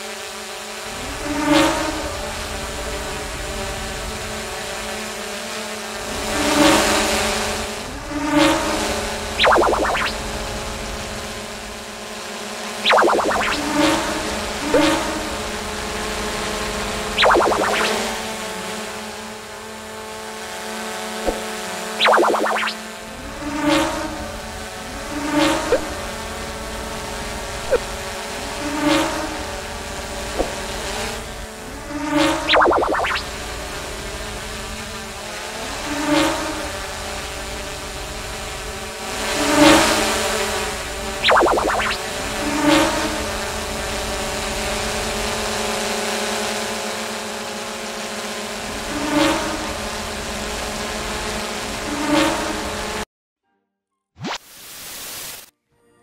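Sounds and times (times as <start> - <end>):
drone propellers buzzing: 6.9 - 45.2
high chirps: 9.4 - 10.2, 12.8 - 13.7, 17.2 - 18.2, 22.0 - 22.8, 32.5 - 33.2, 41.2 - 42.1
drone whooshing past: 17.1 - 18.3.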